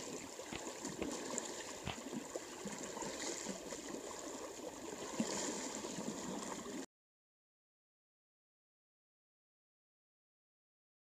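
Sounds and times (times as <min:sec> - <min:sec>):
river flowing: 0:00.0 - 0:06.8
water sloshing around wading legs: 0:00.0 - 0:06.8
small splashes: 0:00.0 - 0:06.9.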